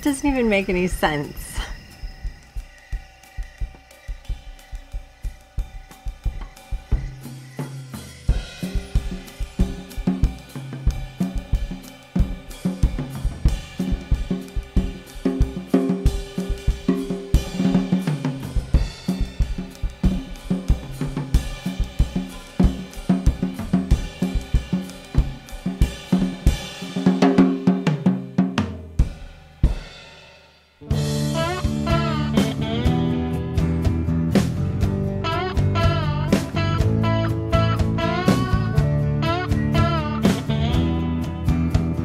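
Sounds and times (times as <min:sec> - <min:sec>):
band music with busy drums: 0:00.0 - 0:42.0
low bass notes: 0:30.9 - 0:42.0.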